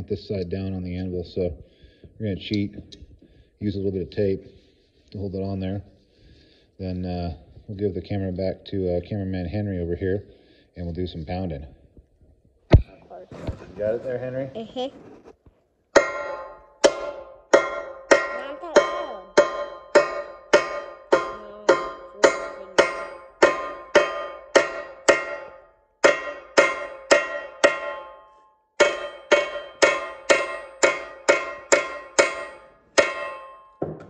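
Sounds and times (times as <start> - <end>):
hammer striking metal: 15.9 - 34.0.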